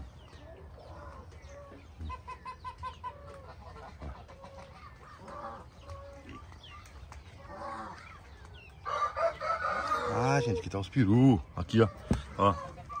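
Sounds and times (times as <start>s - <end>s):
poultry clucking: 0.0s - 13.0s.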